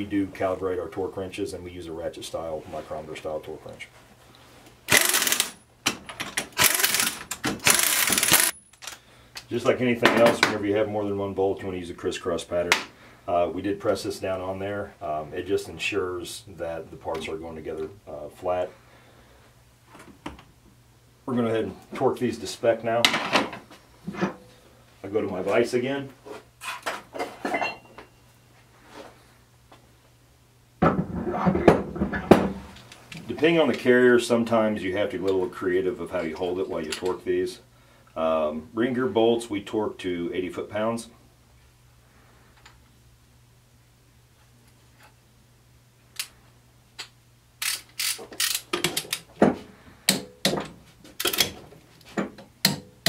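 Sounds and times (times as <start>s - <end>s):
torque wrench ratchet clicking: 4.9s - 5.6s, 6.6s - 9.0s, 47.6s - 49.2s.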